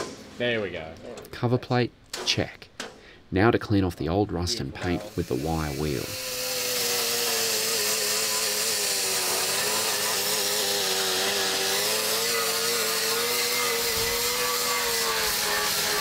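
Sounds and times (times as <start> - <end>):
die grinder whining: 5.0 - 16.0
wire wheel scrubbing metal: 5.0 - 16.0.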